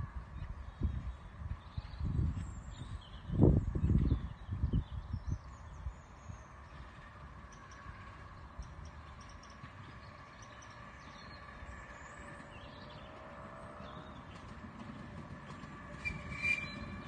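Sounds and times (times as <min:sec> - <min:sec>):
distant steam locomotive: 0:05.5 - 0:17.0
rising squeal: 0:15.9 - 0:17.0.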